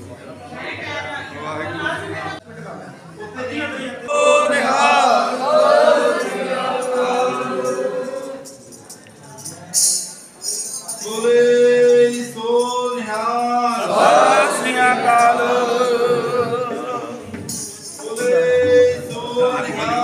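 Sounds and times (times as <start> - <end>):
men singing a hymn unaccompanied: 4.1 - 8.5, 11.0 - 20.0
group of voices singing: 4.1 - 8.7, 11.0 - 20.0
lead voice singing: 11.0 - 20.0.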